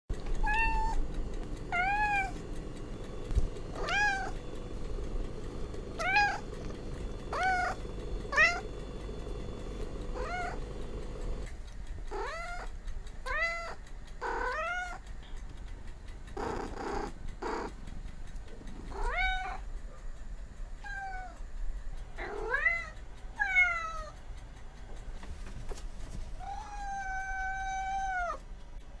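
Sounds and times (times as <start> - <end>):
cat meowing: 0.4 - 1.0, 1.7 - 2.4, 3.7 - 4.4, 6.0 - 6.5, 7.3 - 8.7, 10.2 - 10.6, 12.1 - 15.0, 19.0 - 19.6, 26.4 - 28.4.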